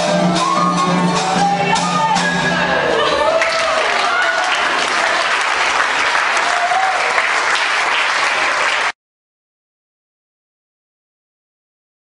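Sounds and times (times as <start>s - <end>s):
people calling out: 0.0s - 5.1s
crowd applauding: 2.8s - 9.0s.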